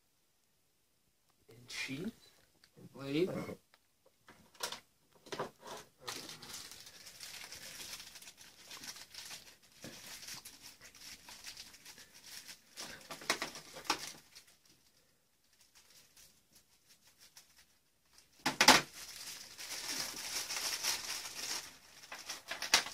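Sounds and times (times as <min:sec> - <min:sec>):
plastic bags crinkling: 0:05.6 - 0:22.9.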